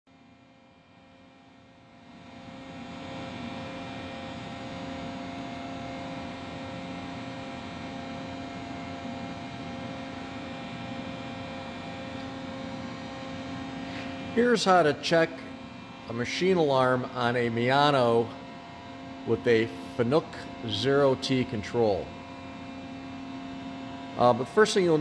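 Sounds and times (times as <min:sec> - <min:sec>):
lathe humming: 0:06.8 - 0:25.0.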